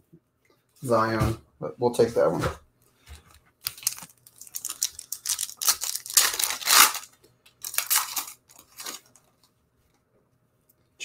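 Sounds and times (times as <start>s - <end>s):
foil wrapper tearing and crinkling: 3.6s - 9.2s.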